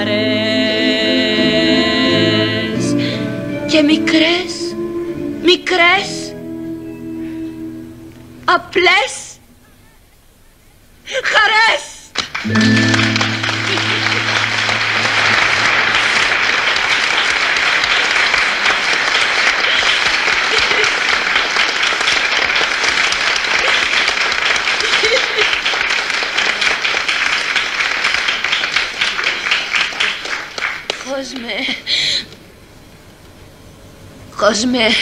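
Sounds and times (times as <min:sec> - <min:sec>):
audience applauding: 0:12.2 - 0:31.6.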